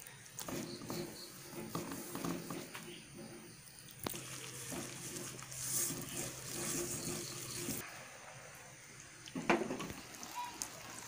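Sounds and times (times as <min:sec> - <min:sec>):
wet squishing batter: 0:00.0 - 0:07.8.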